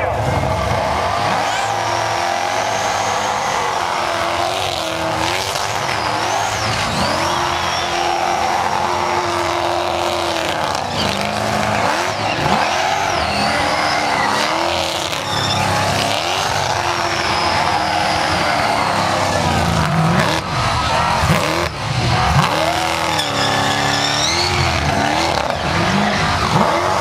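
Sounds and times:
car engine revving high: 0:00.0 - 0:27.0
tyres screeching while spinning: 0:01.0 - 0:27.0.

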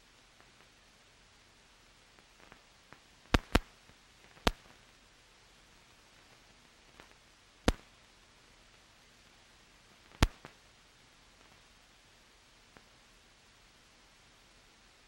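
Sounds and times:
faint film soundtrack hiss: 0:00.0 - 0:15.0
sharp clicks: 0:02.4 - 0:03.7, 0:04.3 - 0:04.8, 0:07.0 - 0:07.9, 0:10.1 - 0:10.6.

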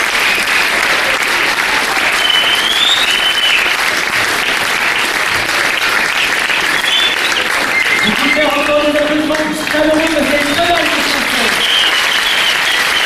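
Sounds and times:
audience applauding: 0:00.0 - 0:13.0
high whistle: 0:02.2 - 0:03.7, 0:06.7 - 0:08.9, 0:11.6 - 0:13.0.

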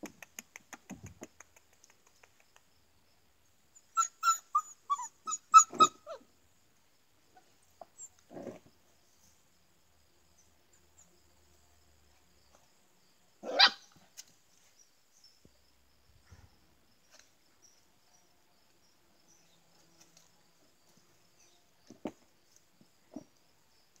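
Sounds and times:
dog barking: 0:13.4 - 0:13.9.

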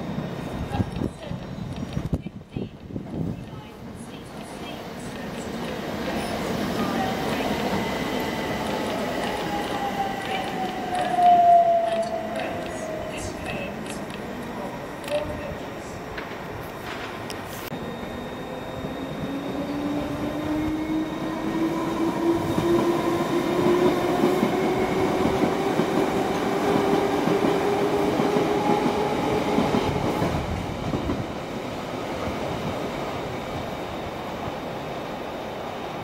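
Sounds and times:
wheels rumbling on rails: 0:02.8 - 0:31.3.

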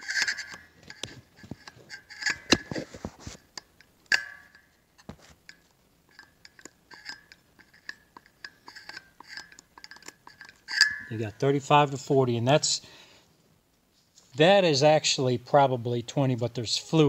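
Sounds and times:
light metal clicks and scrapes: 0:00.0 - 0:12.2.

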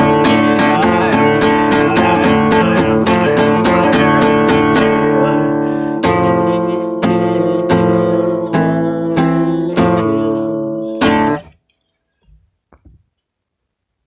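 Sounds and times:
acoustic guitar strumming: 0:00.0 - 0:11.5
faint taps: 0:11.7 - 0:13.3.

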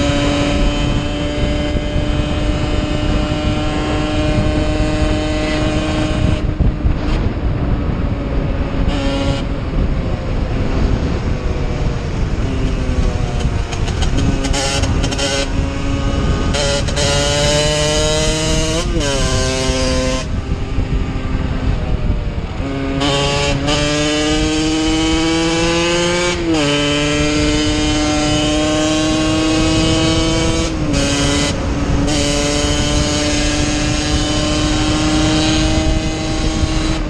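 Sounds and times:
wind on microphone: 0:00.0 - 0:37.0
two-stroke motorcycle engine: 0:08.5 - 0:37.0.

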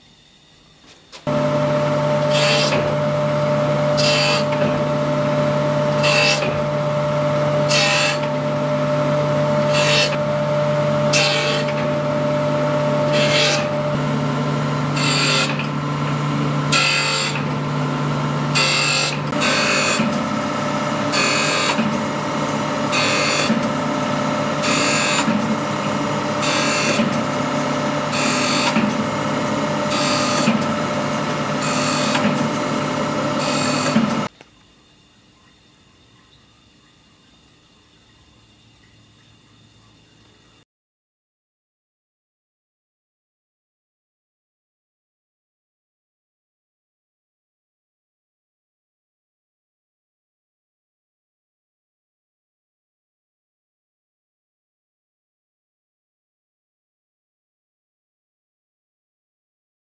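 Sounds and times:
grinder motor hum: 0:01.1 - 0:34.4.

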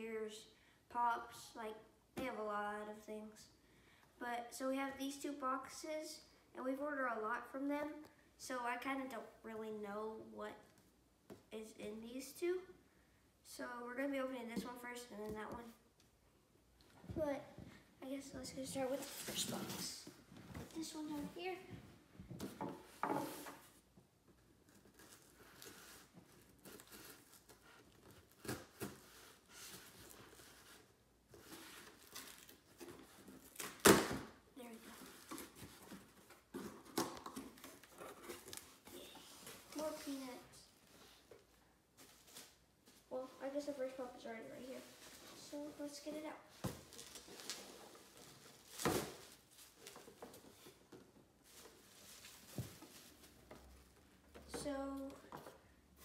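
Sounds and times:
bubble wrap rustling: 0:24.5 - 0:33.8, 0:46.8 - 0:54.0
packing tape scratching and tearing: 0:24.7 - 0:30.8.

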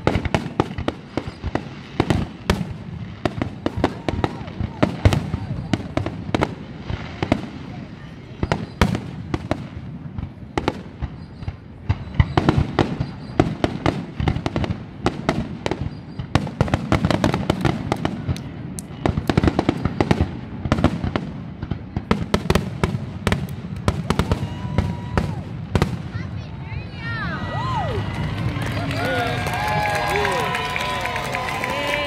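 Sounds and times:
fireworks bangs: 0:00.0 - 0:32.0.

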